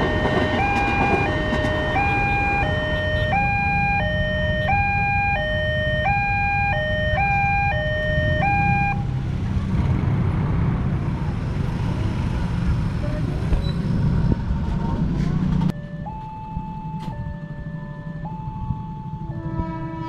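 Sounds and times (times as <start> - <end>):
two-tone crossing alarm: 0.0 - 9.1, 15.7 - 20.0
street traffic noise: 0.0 - 20.0
motorbike engines running: 7.4 - 15.7.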